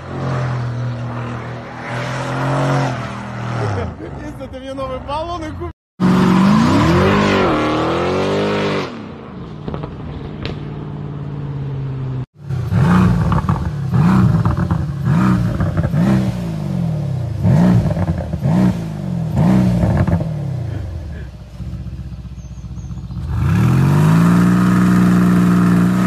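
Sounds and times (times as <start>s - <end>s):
car engine revving: 12.4s - 26.0s
car engine idling: 20.6s - 23.4s.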